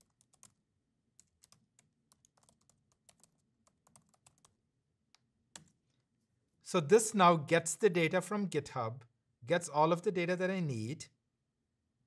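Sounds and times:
typing on a keyboard: 0.0s - 0.6s, 1.2s - 4.6s.

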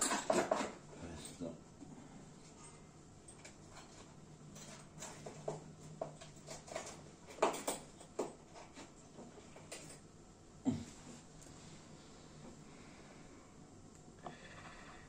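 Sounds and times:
metal tools clicking and tapping: 3.3s - 8.9s.

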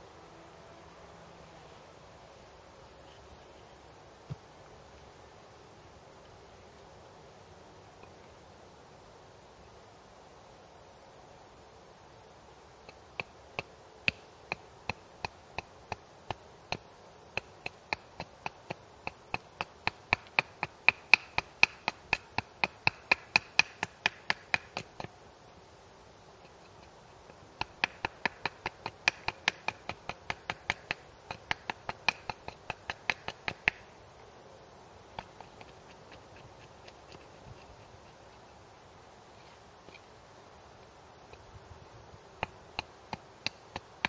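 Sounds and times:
hatchet chopping wood: 17.4s - 25.1s, 27.6s - 33.8s, 42.4s - 44.0s.

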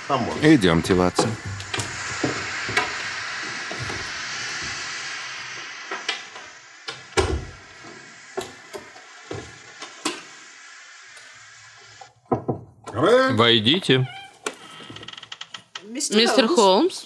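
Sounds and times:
train hiss: 0.0s - 12.2s
sharp knocks: 1.2s - 2.9s.

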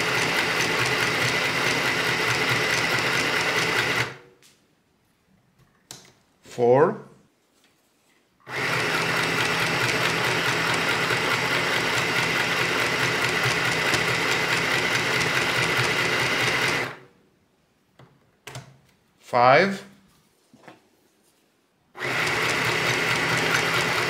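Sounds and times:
sewing machine stitching: 0.0s - 4.2s, 8.5s - 17.1s, 22.0s - 24.0s.

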